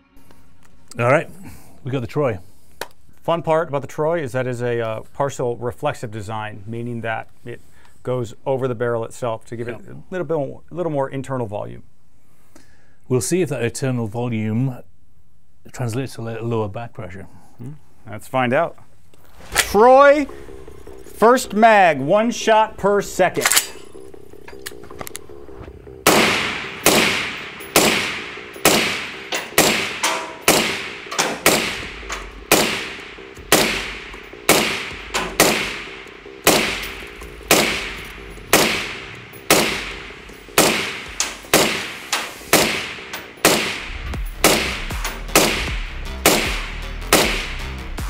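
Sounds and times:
suppressed rifle shots: 26.0 - 47.5.

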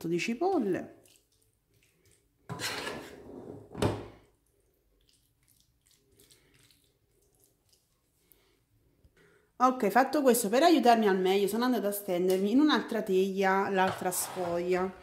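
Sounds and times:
spatula scraping metal pan: 2.5 - 3.6, 13.8 - 15.0.

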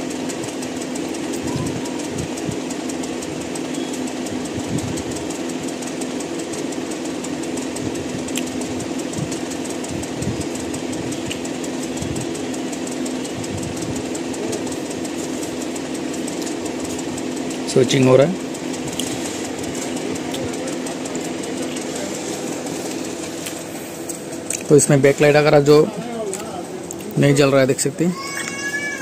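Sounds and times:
fast even rattle: 0.0 - 28.9
mechanical hum: 0.0 - 29.0.

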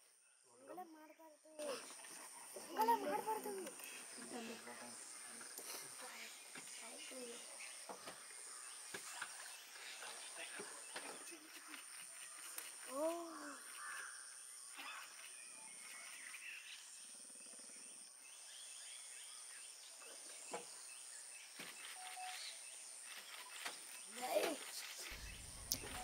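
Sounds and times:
low hum: 25.0 - 26.0.

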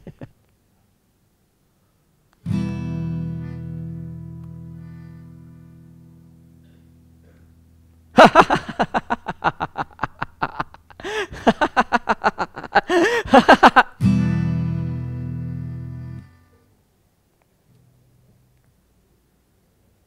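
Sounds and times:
man laughing loudly: 0.0 - 0.4, 8.1 - 14.0
acoustic guitar chord strummed: 2.4 - 8.2, 14.0 - 16.7.

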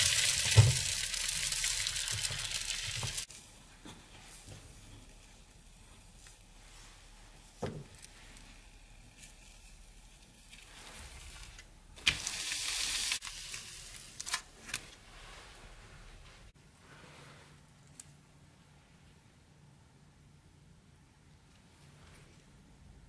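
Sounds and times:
crepe sizzling in a pan: 0.0 - 14.4.

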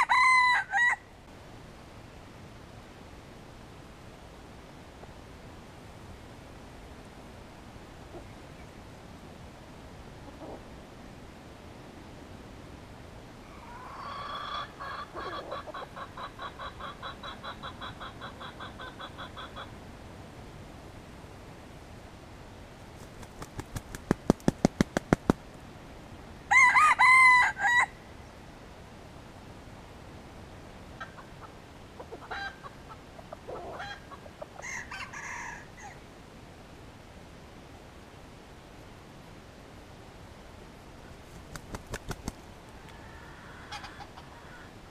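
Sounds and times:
rooster calling: 0.0 - 1.1, 13.5 - 19.7, 42.8 - 44.8
rooster crowing: 0.0 - 1.1, 26.5 - 28.0
rooster clucking: 13.6 - 19.7, 31.0 - 35.6, 42.8 - 44.8.

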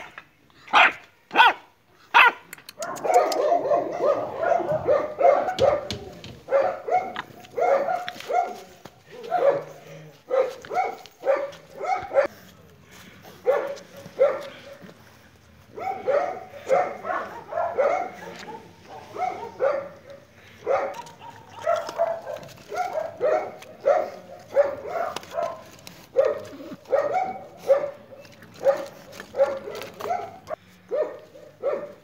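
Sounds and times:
puppies yapping: 20.6 - 30.6.

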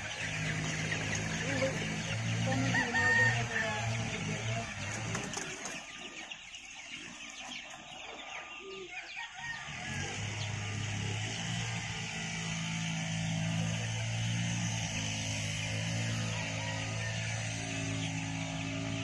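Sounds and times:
chickens clucking: 0.0 - 19.0
rooster crowing: 2.4 - 4.2, 8.2 - 10.9, 15.9 - 19.0.

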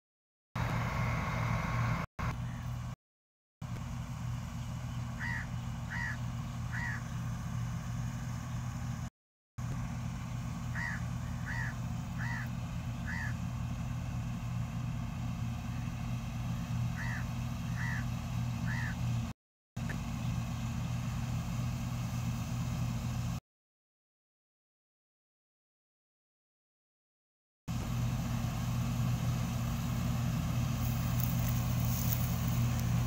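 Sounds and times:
combine harvester engine running: 0.6 - 3.0, 3.6 - 23.4, 27.7 - 33.0
bird calling: 2.4 - 2.8, 5.0 - 7.4, 10.7 - 13.5, 16.9 - 19.0, 30.8 - 33.0.

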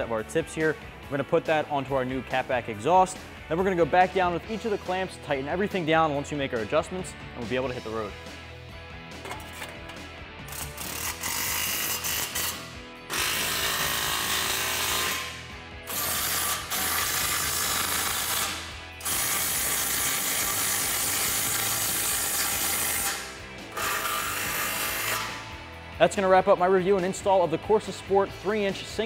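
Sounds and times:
cordless electric ratchet running: 10.4 - 25.6.

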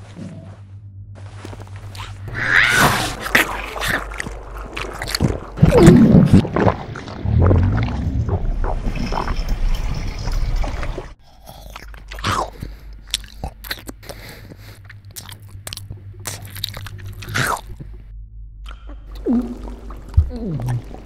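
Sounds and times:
loud low rumble: 0.5 - 2.3, 17.8 - 20.6
wet slurps: 2.8 - 9.4, 10.7 - 17.9
wet mouth chewing and smacking: 3.3 - 6.8, 11.3 - 17.9.

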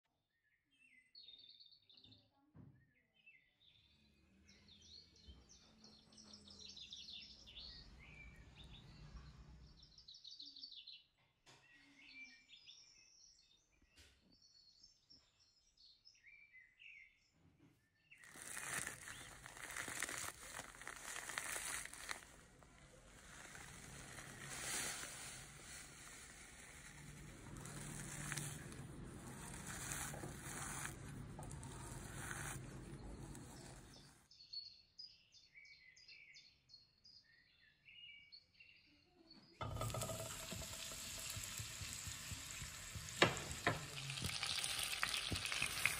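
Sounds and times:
plastic bag crinkling: 18.2 - 34.2.

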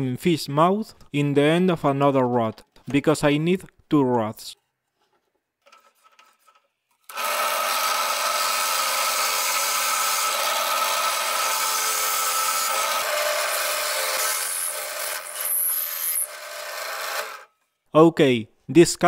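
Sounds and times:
hole saw cutting wood: 7.0 - 17.5
drill press motor whine: 7.1 - 17.5.

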